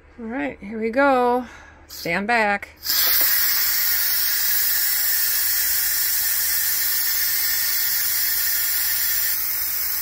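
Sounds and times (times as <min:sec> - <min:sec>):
steam hissing from pressure cooker: 0:02.8 - 0:10.0.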